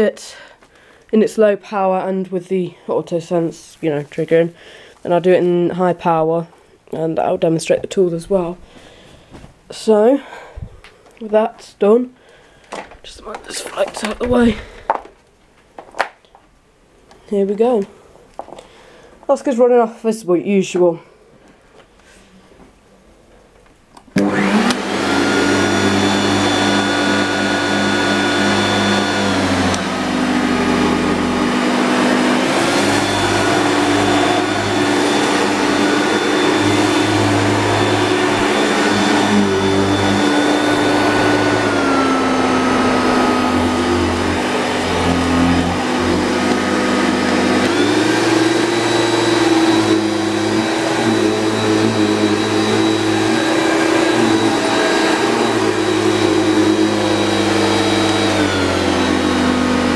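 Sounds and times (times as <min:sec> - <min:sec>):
vacuum cleaner motor hum: 0:24.1 - 0:59.9.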